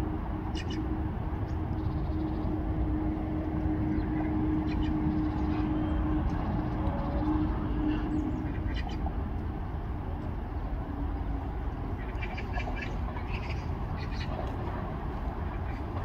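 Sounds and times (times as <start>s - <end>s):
low rumble of traffic: 0.0s - 16.0s
coots calling: 12.0s - 14.4s.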